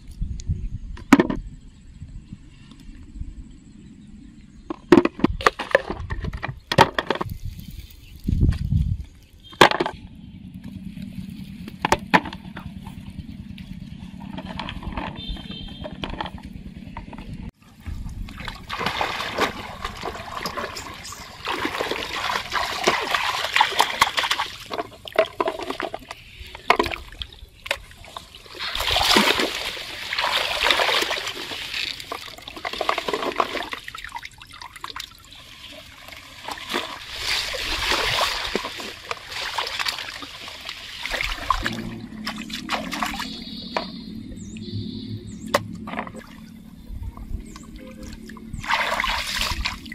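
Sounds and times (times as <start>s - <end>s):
shallow water splashing: 17.8s - 44.7s, 47.4s - 49.9s.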